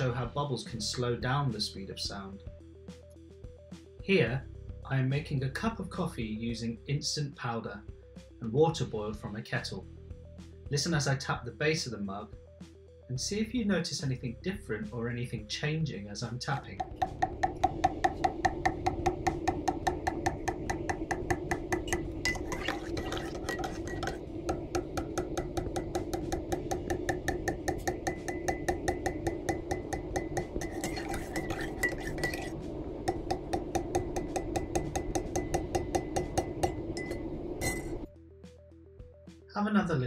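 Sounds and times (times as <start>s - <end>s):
teaspoon tapping ceramic mug: 16.8s - 38.0s.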